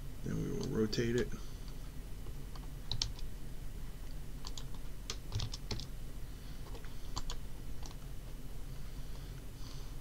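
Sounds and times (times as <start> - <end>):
low steady hum: 0.0 - 10.0
keyboard keystrokes: 4.4 - 5.9.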